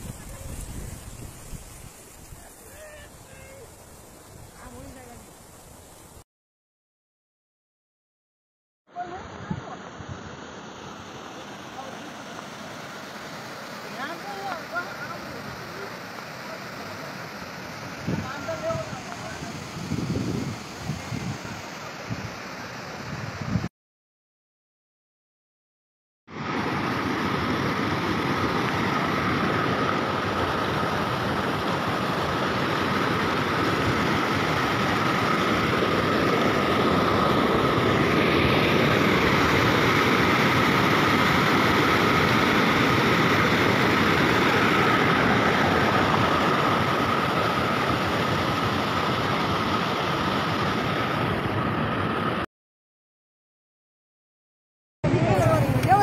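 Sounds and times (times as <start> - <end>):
water rushing over rocks: 9.0 - 23.0, 26.3 - 52.4.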